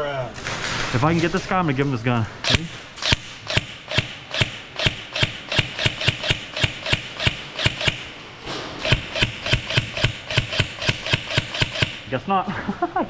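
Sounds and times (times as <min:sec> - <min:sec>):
airsoft gun shots: 0:02.4 - 0:12.2.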